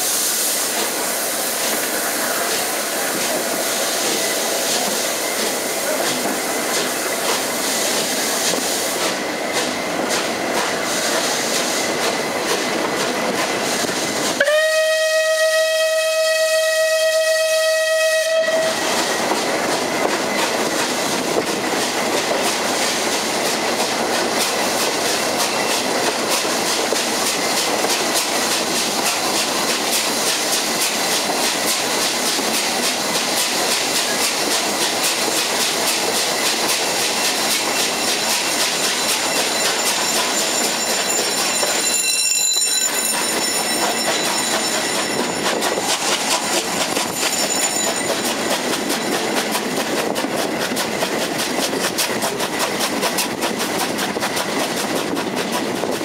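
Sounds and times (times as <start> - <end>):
steam locomotive running: 0.0 - 56.0
steam whistle: 14.4 - 19.0.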